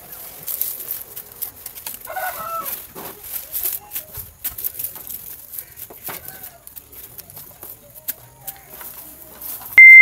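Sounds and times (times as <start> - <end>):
leaves rustling and crackling: 0.0 - 9.8
chicken clucking: 2.0 - 3.9.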